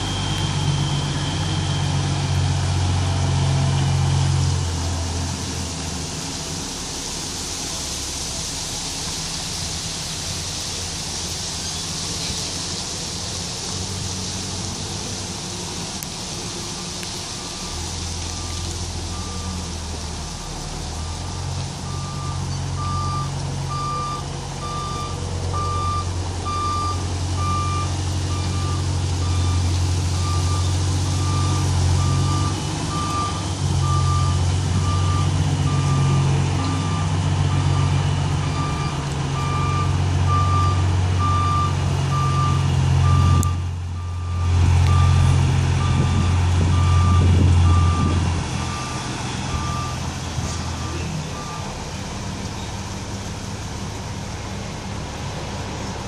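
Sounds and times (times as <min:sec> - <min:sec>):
truck diesel engine running: 0:00.0 - 0:56.0
backup alarm beeping: 0:21.9 - 0:29.6, 0:38.5 - 0:50.0.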